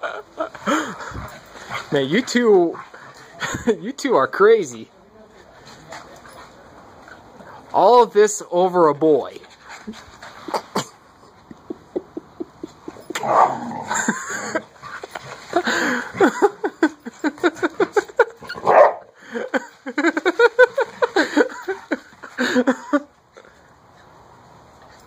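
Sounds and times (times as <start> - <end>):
dogs barking and yipping: 11.7 - 16.4, 17.0 - 19.1.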